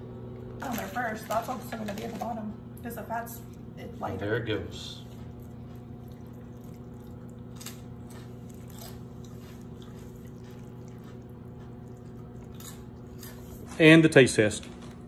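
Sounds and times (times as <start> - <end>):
steady low hum: 0.0 - 15.0
liquid dripping onto meat: 5.3 - 12.4.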